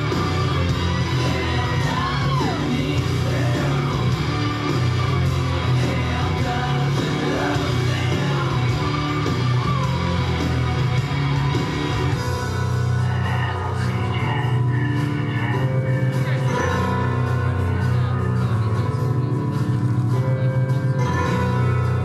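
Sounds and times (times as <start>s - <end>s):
heavy steady bass: 0.0s - 22.0s
song with singer: 0.0s - 22.0s.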